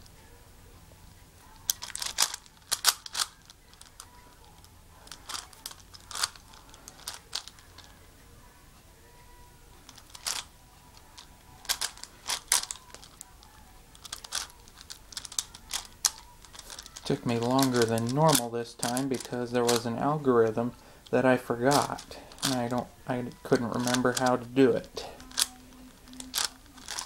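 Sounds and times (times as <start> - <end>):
puzzle cube clicking: 1.5 - 7.9, 9.8 - 20.1, 21.2 - 27.0.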